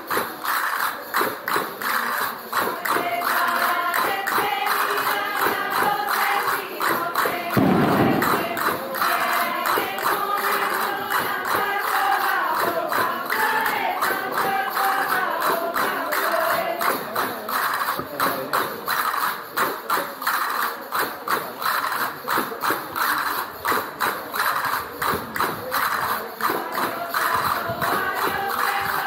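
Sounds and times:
tambourines beating: 0.0 - 29.0
voices singing together: 1.8 - 17.7, 26.1 - 29.0.

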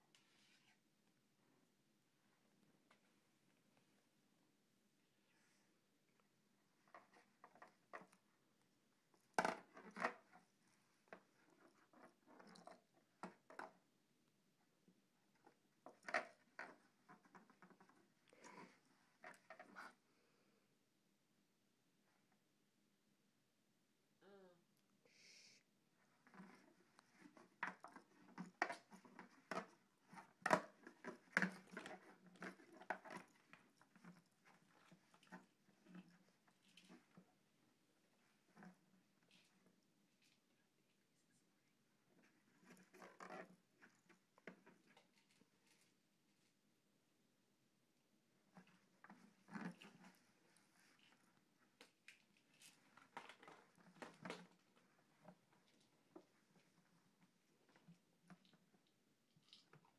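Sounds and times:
cat scrabbling in plastic pail: 26.1 - 40.4.

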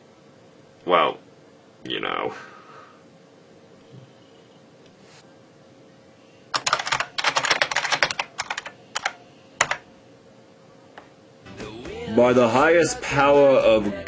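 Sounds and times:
typing on computer keyboard: 6.6 - 9.8.

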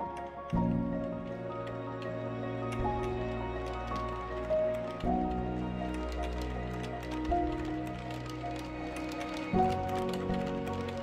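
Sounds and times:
calm instrumental music: 0.0 - 11.0.

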